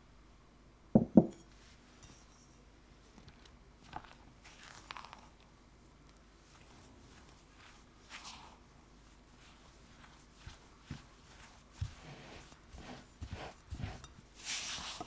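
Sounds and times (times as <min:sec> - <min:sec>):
spatula scraping in a glass bowl: 0:10.0 - 0:15.0.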